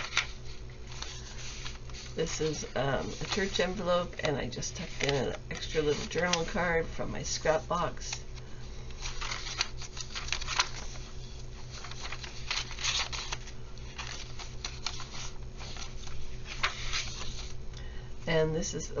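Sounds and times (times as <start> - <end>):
paper pages rustling: 0.0 - 6.7, 7.5 - 17.6.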